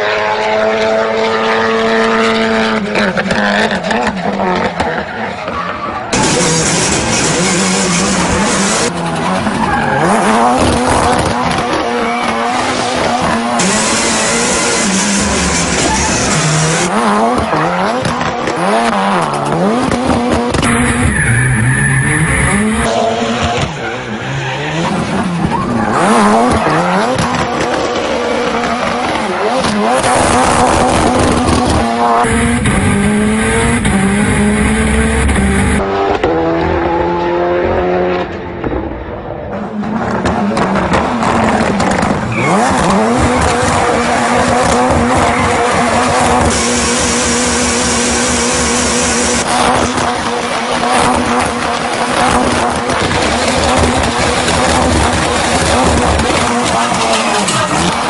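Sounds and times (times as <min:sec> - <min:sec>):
rally car engine revving: 0:00.0 - 0:58.0
tyres squealing and skidding: 0:02.9 - 0:19.8, 0:20.6 - 0:32.7, 0:42.1 - 0:58.0.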